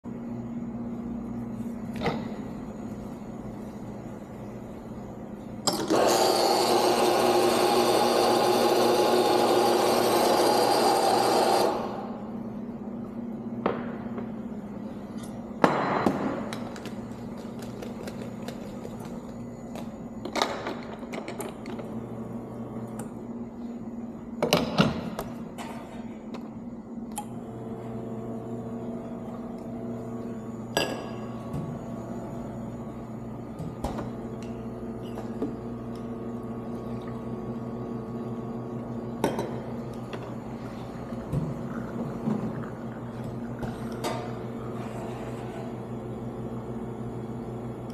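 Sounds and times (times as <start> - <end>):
espresso machine hum: 0.0 - 25.1, 26.5 - 47.9
espresso grinder motor running: 5.8 - 12.1.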